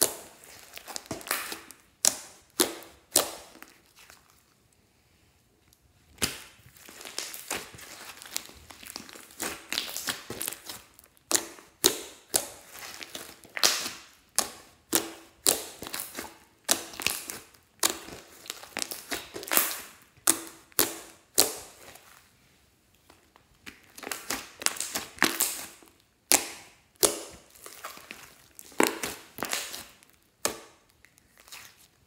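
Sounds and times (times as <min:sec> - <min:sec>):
slime being squished by hand: 0:00.0 - 0:04.6, 0:06.1 - 0:22.3, 0:23.0 - 0:32.0.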